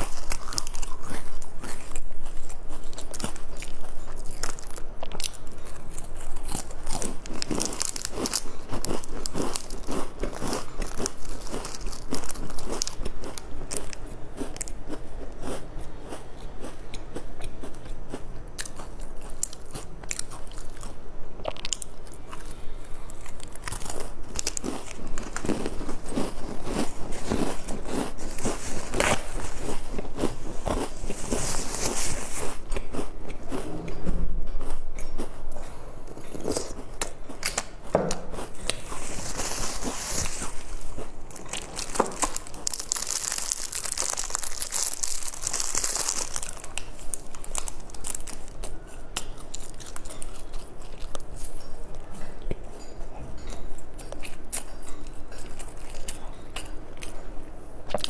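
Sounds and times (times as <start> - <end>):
crinkling: 0.0 - 14.8, 21.5 - 34.0, 38.4 - 52.1
crunchy chewing: 0.0 - 58.0.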